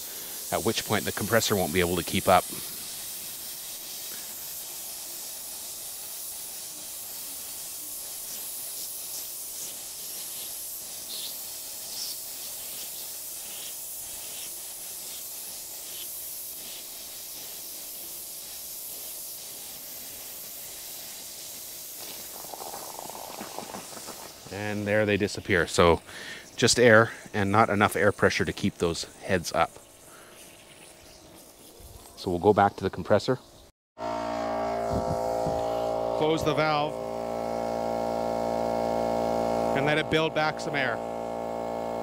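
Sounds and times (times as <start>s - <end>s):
water spitting: 0.0s - 30.3s
sprinkler heads hissing air: 0.0s - 33.4s, 34.7s - 42.0s.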